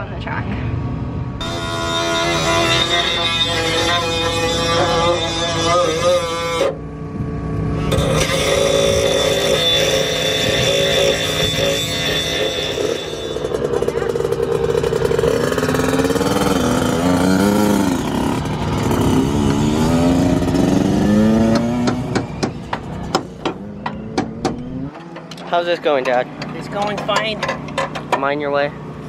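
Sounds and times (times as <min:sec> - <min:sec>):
dirt bike engine revving: 0:01.0 - 0:25.4
angle grinder whine: 0:01.3 - 0:29.0
sharp knocks: 0:21.4 - 0:25.3.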